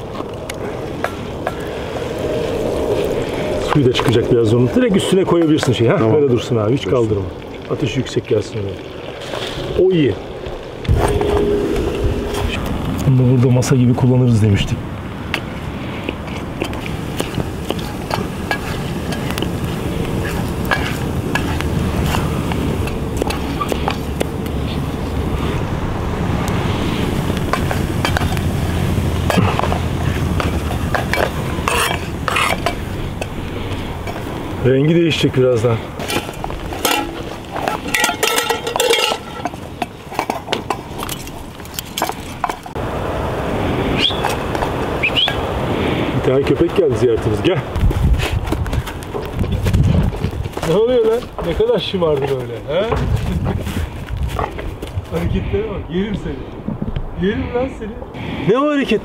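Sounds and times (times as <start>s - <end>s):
pops and crackles: 16.1s - 24.9s
mushrooms sizzling in butter: 16.8s - 23.8s
spoon scraping against pan: 17.2s - 19.5s, 29.3s - 33.3s, 36.0s - 39.6s.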